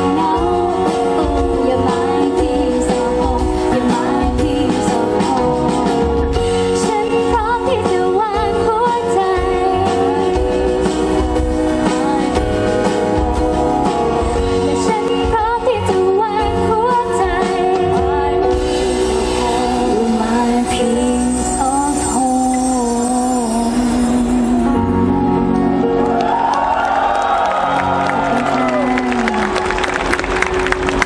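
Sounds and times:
woman singing into microphone: 0.0 - 13.6, 14.2 - 25.7
bass guitar: 0.0 - 26.5
drums: 0.0 - 31.0.

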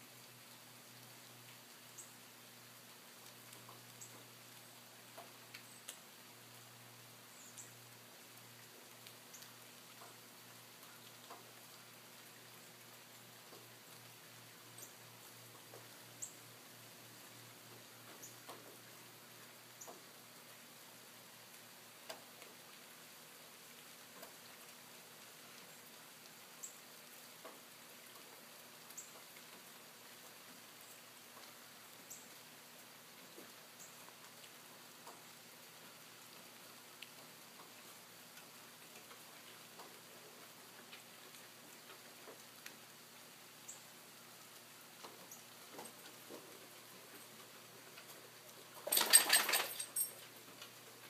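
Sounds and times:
faint even hiss: 0.0 - 51.0
snow ticking on leaves: 0.0 - 51.0
soft ticks: 3.2 - 4.3, 5.1 - 6.0, 8.8 - 10.2, 10.8 - 11.5, 13.4 - 13.7, 18.0 - 18.8, 19.8 - 20.1, 22.0 - 22.5, 24.1 - 24.8, 27.4 - 28.3, 33.3 - 35.3, 37.0 - 40.0.

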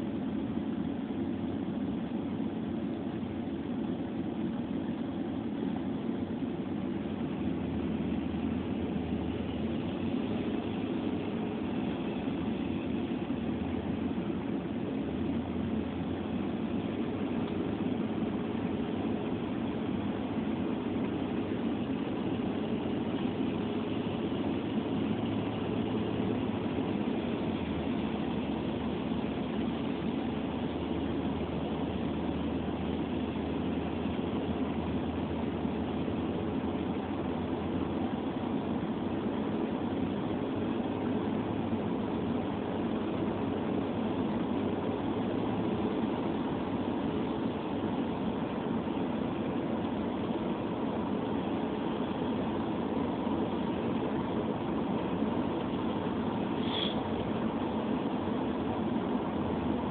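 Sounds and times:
car engine from inside cabin: 0.0 - 59.9
road noise: 0.0 - 59.9.

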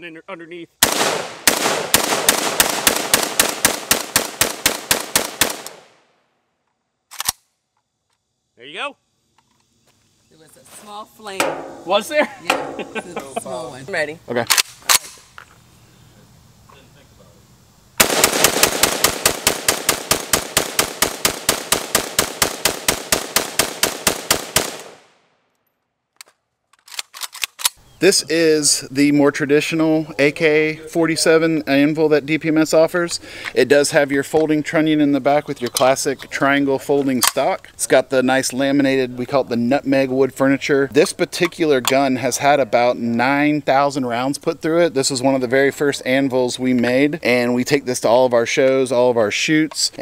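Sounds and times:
rifle firing rapid shots: 0.8 - 5.9, 18.0 - 25.0
gunshot echo: 0.8 - 6.0, 11.4 - 11.9, 18.0 - 25.2.

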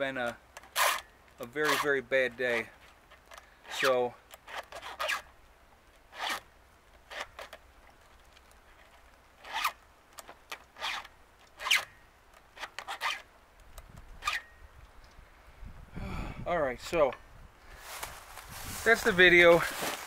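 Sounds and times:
file rasping on chainsaw chain: 0.7 - 2.0, 3.7 - 5.2, 6.1 - 6.4.

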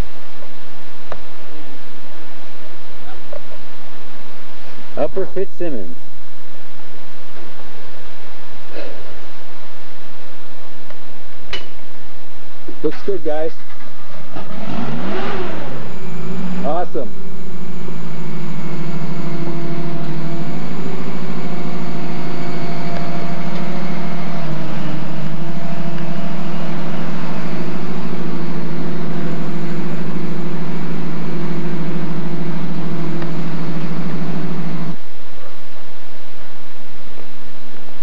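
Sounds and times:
engine idling: 12.7 - 35.8.

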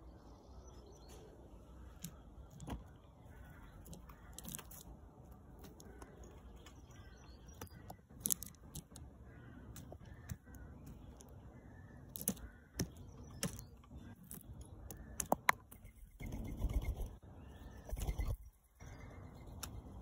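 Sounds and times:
bird pecking on gravel: 1.9 - 17.1
faint bird twittering: 9.2 - 20.0.

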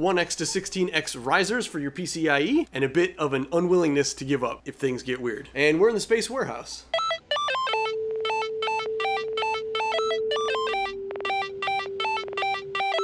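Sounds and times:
bell-like synth notes: 7.0 - 13.0.

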